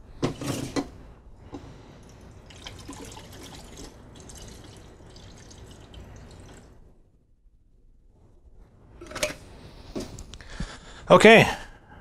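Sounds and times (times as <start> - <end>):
liquid pouring into plastic tank: 2.4 - 6.7.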